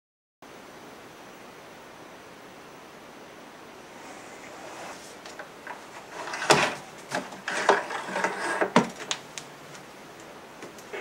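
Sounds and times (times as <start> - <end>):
faint tv static hiss: 0.4 - 11.0
plastic cabinet handling: 4.5 - 9.2.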